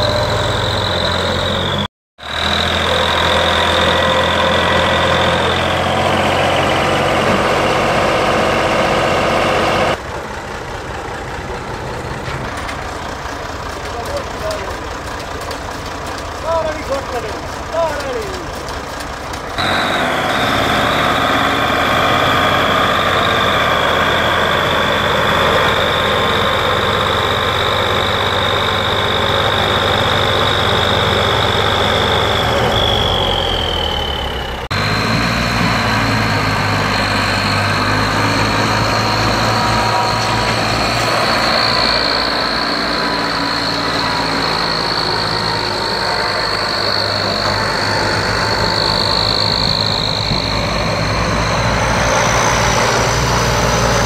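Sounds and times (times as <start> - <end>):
diesel tractor engine under load: 0.0 - 54.0
high whine: 19.6 - 54.0.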